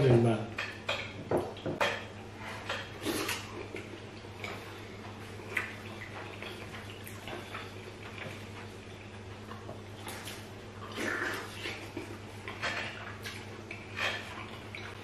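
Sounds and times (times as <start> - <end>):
people eating wet food: 0.0 - 15.0
slurp: 10.1 - 12.1.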